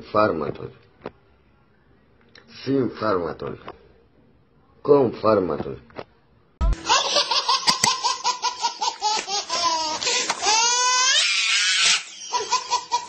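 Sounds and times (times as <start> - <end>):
baby laughing: 6.7 - 13.0
baby squealing: 7.4 - 13.0
baby gasping: 9.1 - 10.8.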